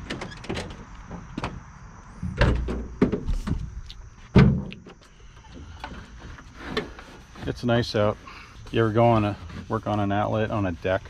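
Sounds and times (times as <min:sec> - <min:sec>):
heavy thumps: 0:01.0 - 0:08.1.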